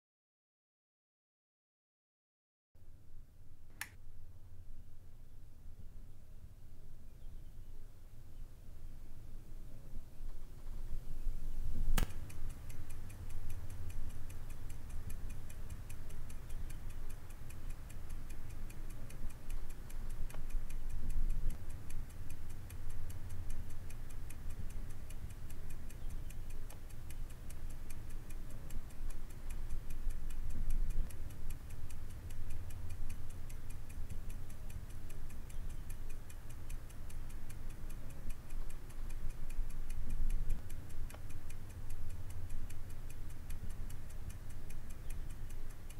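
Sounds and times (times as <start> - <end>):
clock ticking: 12.0 - 45.9.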